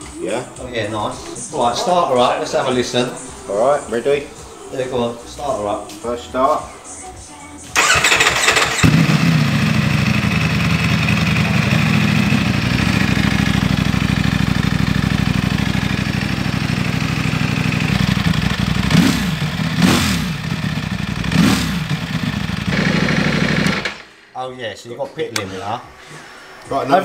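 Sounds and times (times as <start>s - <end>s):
motorcycle engine idling: 7.8s - 24.0s.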